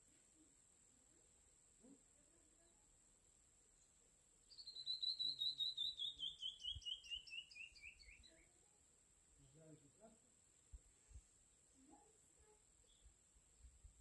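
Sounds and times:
bird singing descending notes: 0:04.5 - 0:08.4.

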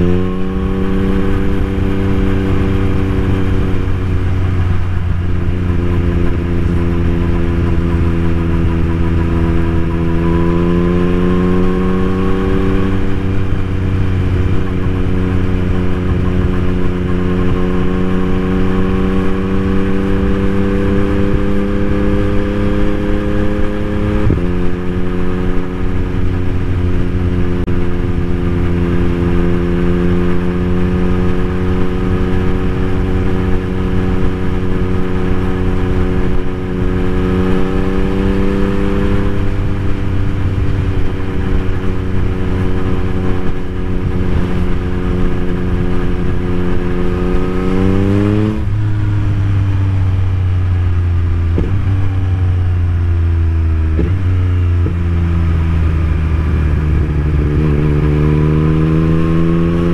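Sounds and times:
motorcycle engine: 0:00.0 - 0:59.9.

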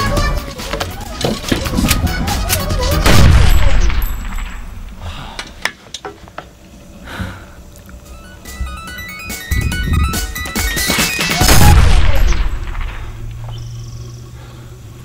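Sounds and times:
loud blast: 0:03.0 - 0:05.0, 0:11.3 - 0:13.4.

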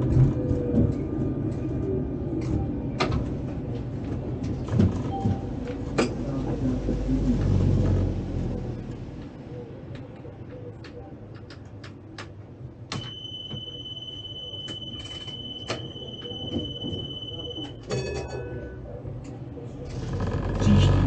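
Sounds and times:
high electronic warning tone: 0:13.0 - 0:17.9.

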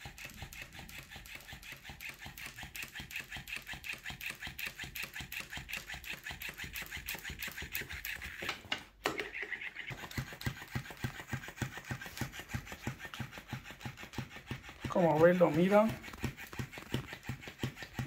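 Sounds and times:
toy motor clicking whir: 0:00.0 - 0:18.0.

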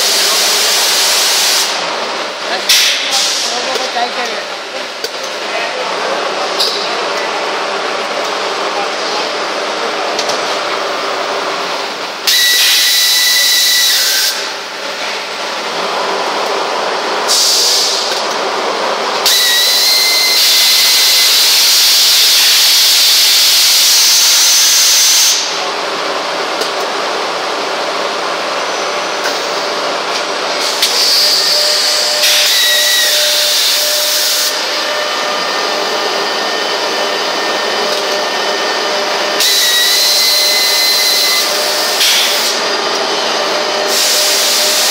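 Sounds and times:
loud hissing blasts with whistle: 0:12.2 - 0:14.5, 0:17.3 - 0:18.0, 0:19.3 - 0:25.4, 0:30.7 - 0:34.7, 0:39.4 - 0:42.6, 0:43.8 - 0:44.9.

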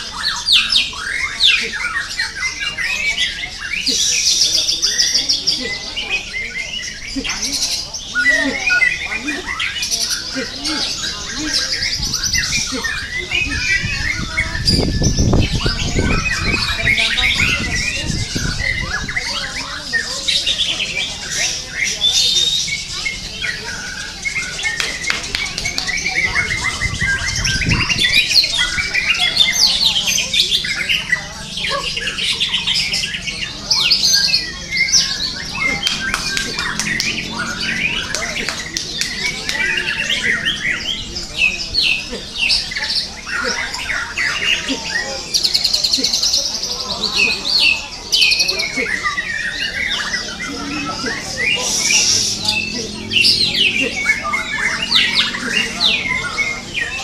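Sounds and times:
other birds calling: 0:00.0 - 0:57.0
songbirds singing: 0:00.0 - 0:57.0
low rumbling noise: 0:31.4 - 0:43.2, 0:49.5 - 0:57.0.

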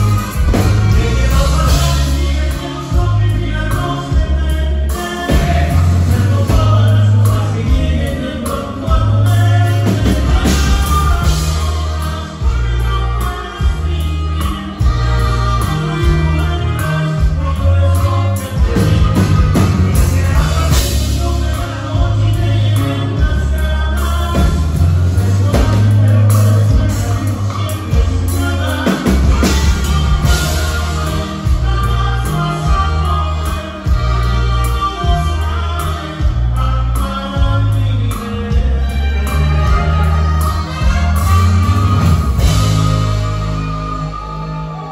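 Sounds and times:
bass line: 0:00.0 - 0:44.9
drum kit: 0:00.0 - 0:44.9
guitars: 0:00.0 - 0:44.9
live band playing: 0:00.0 - 0:44.9.

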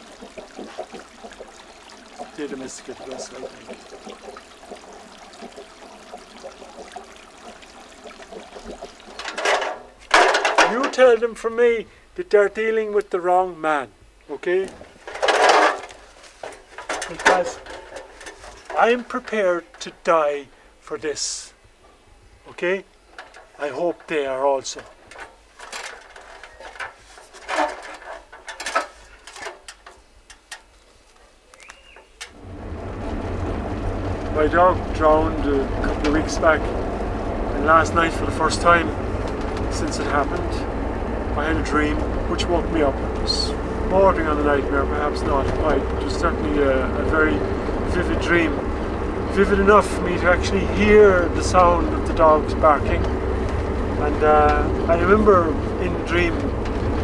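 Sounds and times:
water trickling: 0:00.0 - 0:11.1, 0:32.2 - 0:57.0
clicks and knocks on metal ladder: 0:09.2 - 0:11.0, 0:14.7 - 0:19.9, 0:23.2 - 0:30.7.

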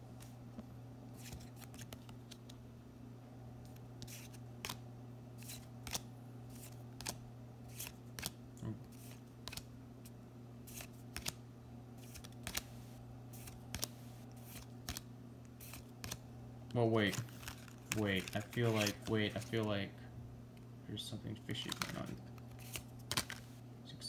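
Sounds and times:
cards snapping: 0:01.2 - 0:02.6, 0:03.7 - 0:04.8, 0:05.4 - 0:11.4, 0:12.0 - 0:16.2, 0:17.0 - 0:19.7, 0:21.5 - 0:23.5.

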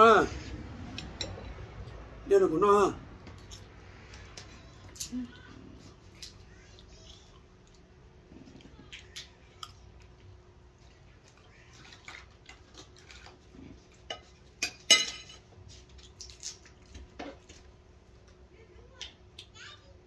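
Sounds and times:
cutlery scraping a plate: 0:14.0 - 0:15.5.

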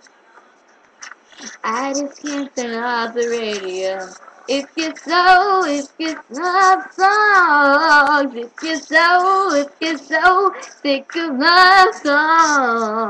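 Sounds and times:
girl singing unaccompanied: 0:01.4 - 0:13.0
singer breathing: 0:10.4 - 0:10.9.

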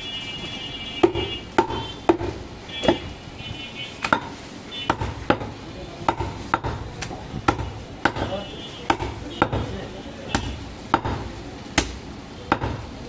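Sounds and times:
knife chopping meat on wood: 0:01.0 - 0:03.0, 0:04.0 - 0:05.5, 0:06.1 - 0:09.7, 0:10.3 - 0:12.8.

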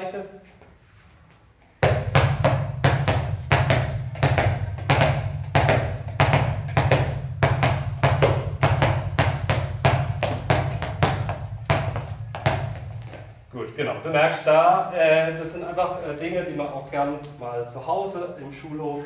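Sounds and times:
balls bouncing on indoor floor: 0:01.6 - 0:13.5.

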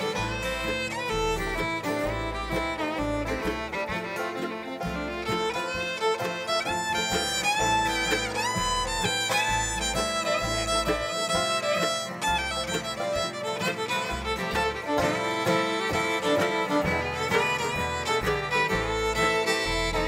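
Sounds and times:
bluegrass band playing: 0:00.0 - 0:20.0
fiddle bowed notes and slides: 0:00.0 - 0:20.0.

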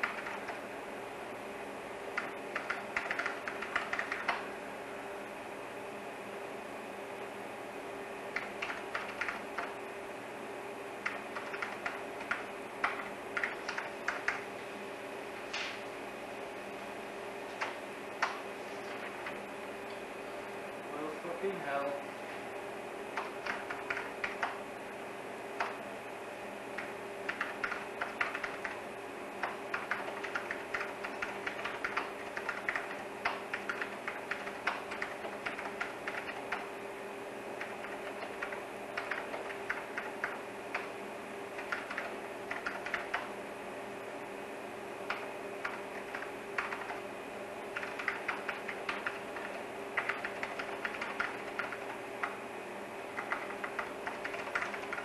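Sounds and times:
keyboard typing clicks: 0:00.0 - 0:00.6, 0:02.1 - 0:04.4, 0:08.3 - 0:09.8, 0:11.0 - 0:14.4, 0:17.6 - 0:18.4, 0:23.2 - 0:24.6, 0:25.6 - 0:25.8, 0:26.8 - 0:28.8, 0:29.4 - 0:36.7, 0:37.6 - 0:40.9, 0:41.6 - 0:43.3, 0:45.1 - 0:47.0, 0:47.7 - 0:52.4, 0:53.2 - 0:55.0
steady hum: 0:00.0 - 0:55.0.

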